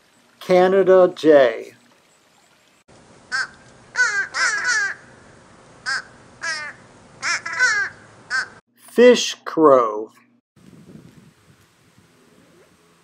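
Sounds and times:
crow cawing: 3.3s - 5.1s, 5.8s - 8.6s.

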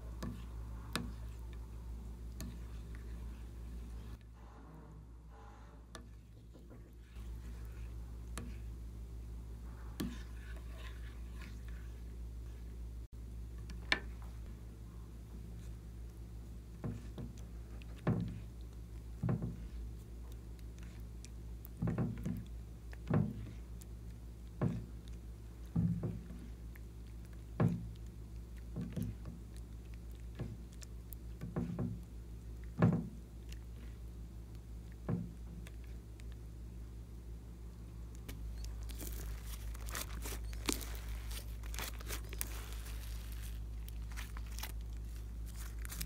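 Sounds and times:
faint low hum: 0.0s - 46.0s
slime squelching and popping: 38.2s - 46.0s.

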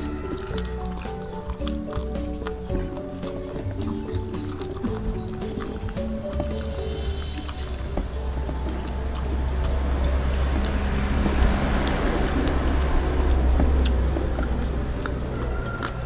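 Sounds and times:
chewing: 0.0s - 16.0s
steady low hum: 0.0s - 16.0s
rushing noise: 6.9s - 15.8s.

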